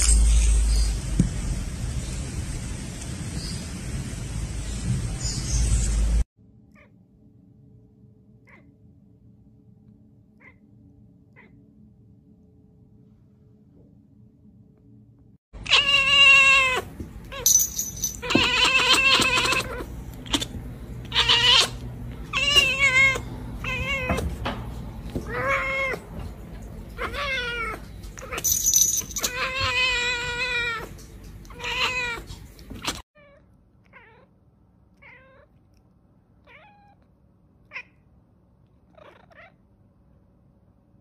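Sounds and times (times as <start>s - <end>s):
cat meowing: 15.6s - 17.4s, 18.2s - 24.4s, 25.2s - 26.0s, 26.9s - 28.4s, 29.2s - 34.3s, 34.9s - 35.6s, 36.4s - 38.0s, 38.8s - 39.6s.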